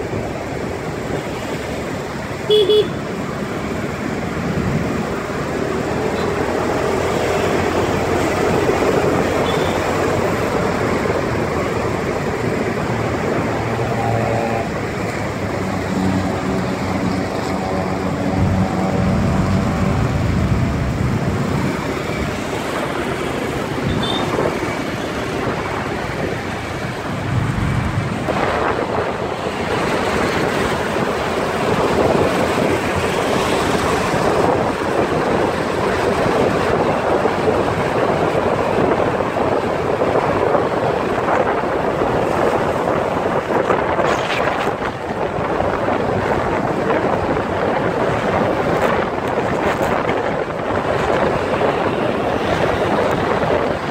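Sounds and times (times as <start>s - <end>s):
road traffic rush: 0.0s - 53.9s
wind buffeting microphone: 4.0s - 53.9s
vehicle passing: 12.8s - 36.4s.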